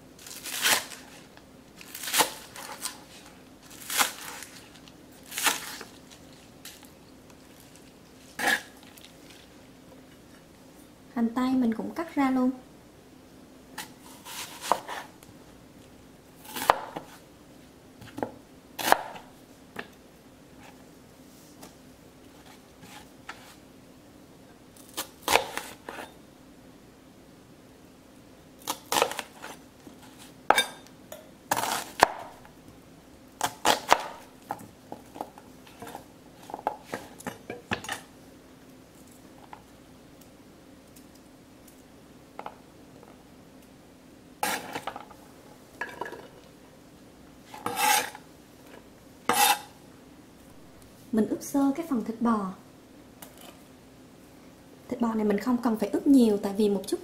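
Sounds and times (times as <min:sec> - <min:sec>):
faint steady hum: 0:00.0 - 0:57.0
knife chopping on cutting board: 0:13.8 - 0:15.1.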